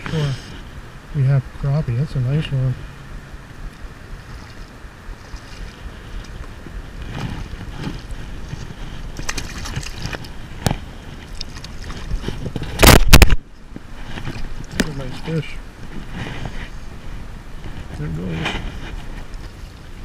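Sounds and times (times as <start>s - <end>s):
wind buffeting the microphone: 0.0s - 20.0s
fish splashing at the surface: 9.1s - 13.2s.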